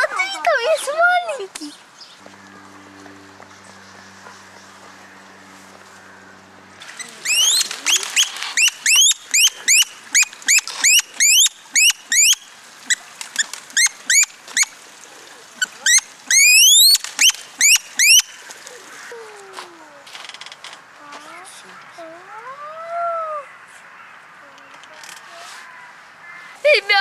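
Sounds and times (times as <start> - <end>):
low hum: 2.2 - 7.8
animal shrill squeals: 7.0 - 12.4, 13.8 - 14.7, 15.8 - 18.3.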